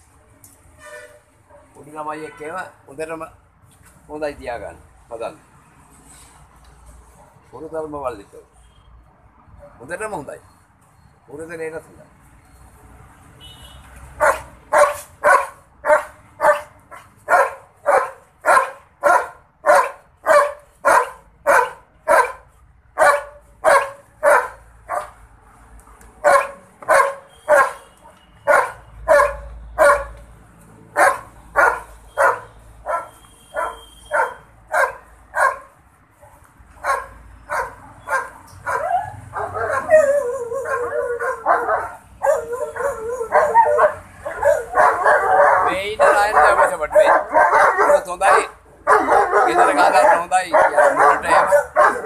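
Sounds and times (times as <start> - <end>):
large dog barking: 14.2 - 25.2, 26.2 - 27.8, 28.5 - 30.2, 30.9 - 35.8, 36.8 - 52.0.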